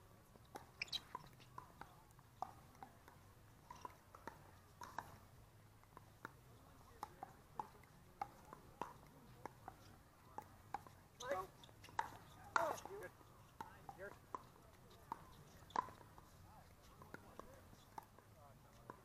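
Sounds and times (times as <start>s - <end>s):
ball bouncing on court: 0.5s - 5.2s, 7.0s - 19.0s.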